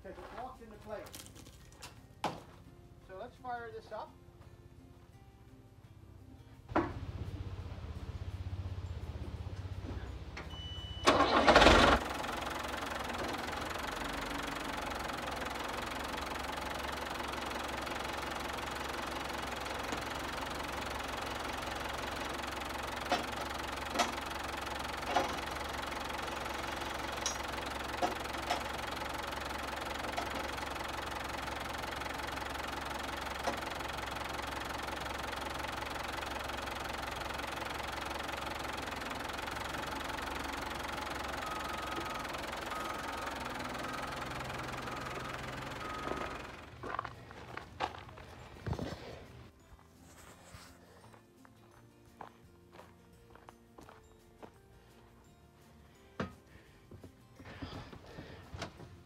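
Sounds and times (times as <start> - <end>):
diesel engine starting and idling: 6.6 - 50.6, 56.2 - 59.0
sharp clicks and clanks: 18.6 - 32.3, 33.2 - 35.6.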